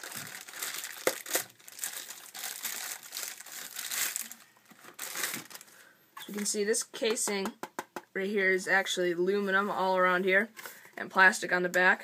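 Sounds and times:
plastic wrapping crinkling: 0.0 - 6.5.

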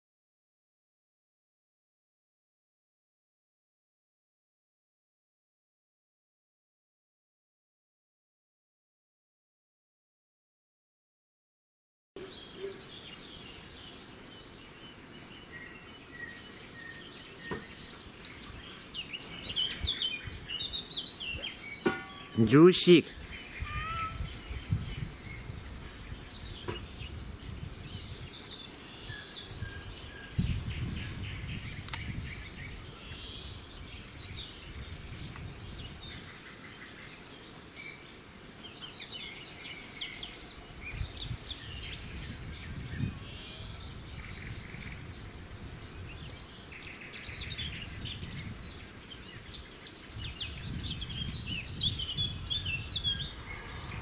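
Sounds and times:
small birds chirping: 12.2 - 54.0
low rumbling noise: 53.1 - 54.0.

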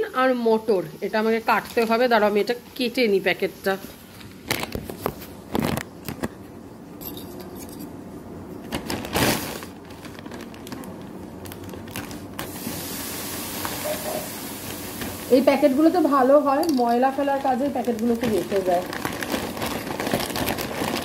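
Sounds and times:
plastic packaging rustling: 3.9 - 6.2, 8.6 - 21.0
scissors cutting plastic bag: 16.5 - 21.0.

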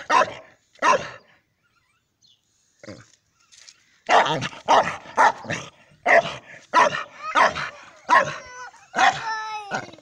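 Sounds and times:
dog barking: 0.0 - 1.2, 4.1 - 9.3.

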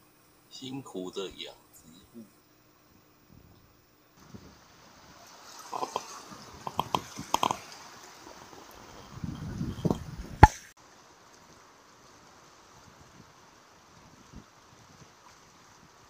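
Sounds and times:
small splashes and drips: 5.0 - 16.0
sea water lapping on concrete: 5.1 - 9.2.

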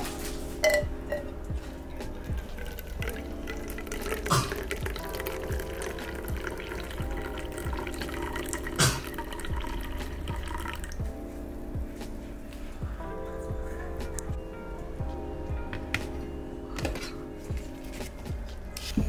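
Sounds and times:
background music with beat: 0.0 - 19.0
coffee pouring into metal mug: 2.3 - 11.0.

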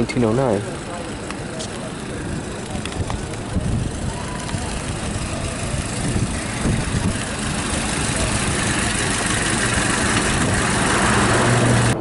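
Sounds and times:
car engine driving past: 4.1 - 12.0.

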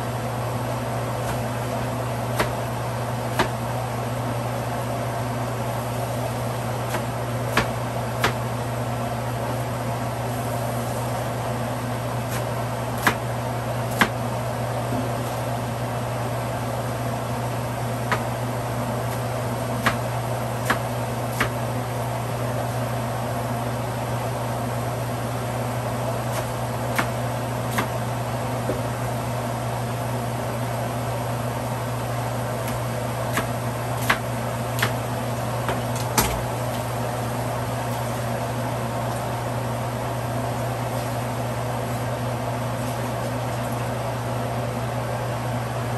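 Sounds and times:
low mechanical hum: 0.0 - 45.9
knife chopping on cutting board: 2.3 - 2.6, 3.3 - 3.6, 6.9 - 8.4, 12.3 - 13.2, 13.9 - 14.2, 18.1 - 18.3, 19.8 - 21.6, 26.3 - 28.0, 32.6 - 35.0.

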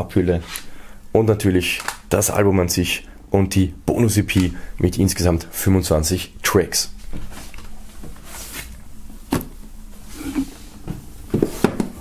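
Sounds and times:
rubbing and rustling of handling: 6.9 - 12.0.

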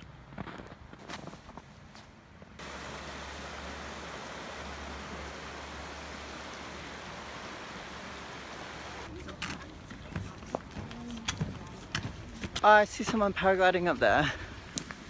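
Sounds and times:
stream rushing over stones: 2.6 - 9.1.

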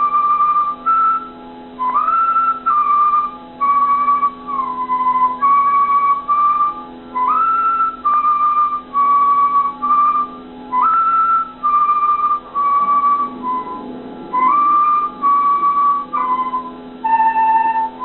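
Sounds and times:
bamboo flute notes: 0.0 - 18.0
faint low drone: 11.6 - 18.0.

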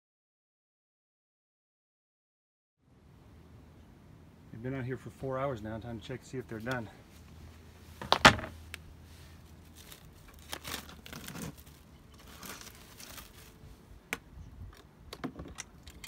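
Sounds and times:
cling wrap crinkling: 8.0 - 13.8
tape peeling: 9.6 - 13.6.

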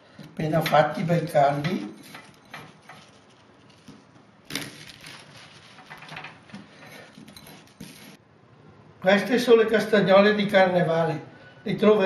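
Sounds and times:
scrape in glass bowl: 1.9 - 4.0, 5.1 - 8.2
dough balls rolling in sugar: 2.0 - 8.2.

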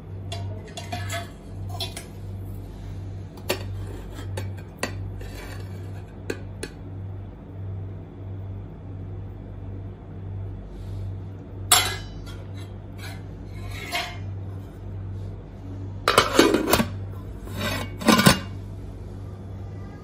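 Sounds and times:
metal spatula scraping a pot: 0.7 - 2.1, 3.6 - 6.2, 12.3 - 14.4, 16.1 - 18.6
pot lid clanking: 16.1 - 17.0, 17.6 - 18.6.

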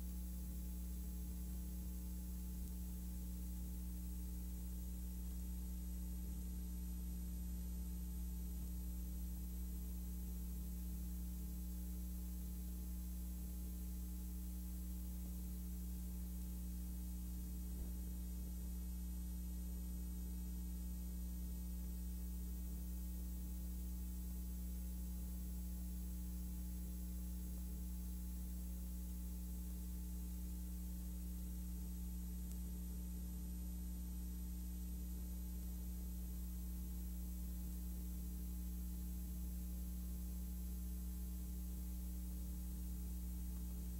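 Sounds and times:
electrical hum with hiss: 0.0 - 43.9
faint click: 32.4 - 32.7.

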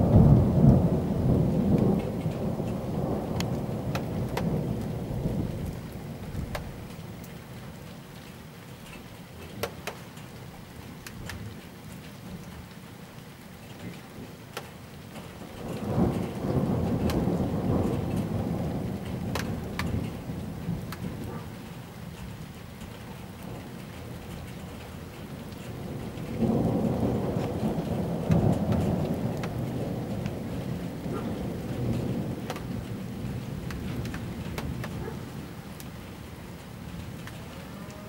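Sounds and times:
rolling thunder: 0.0 - 7.3, 15.2 - 21.4, 23.1 - 36.3
sharp raindrop clicks: 0.0 - 38.0
steady rain: 0.0 - 38.0.

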